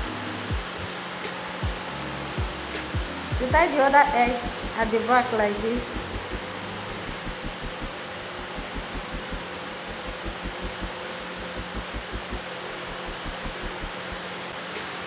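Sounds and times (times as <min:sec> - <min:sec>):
air conditioner hiss: 0:00.0 - 0:15.0
soft low thumps: 0:01.6 - 0:04.9, 0:05.6 - 0:14.2.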